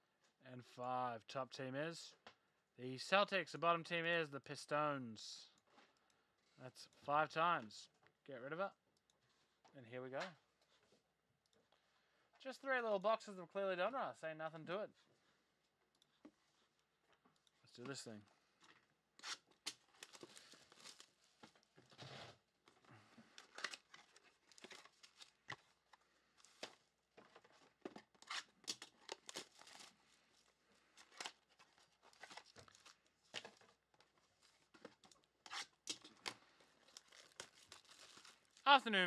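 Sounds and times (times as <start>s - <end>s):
plastic wrap crackling: 19.6s - 21.8s, 28.0s - 34.7s, 35.8s - 39.0s.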